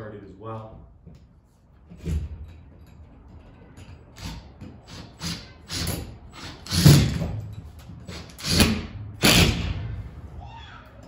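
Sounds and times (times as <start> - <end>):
cordless drill driving screws: 4.2 - 7.2, 8.1 - 9.6.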